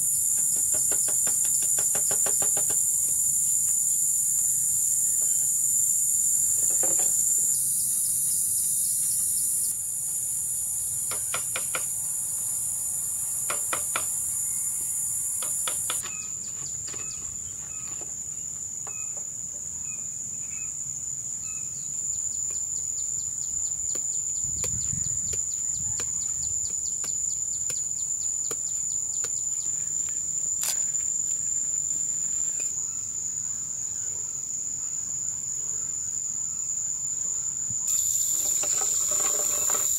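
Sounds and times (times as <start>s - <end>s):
insects trilling: 0.0s - 39.9s
bamboo poles knocking: 0.4s - 2.9s.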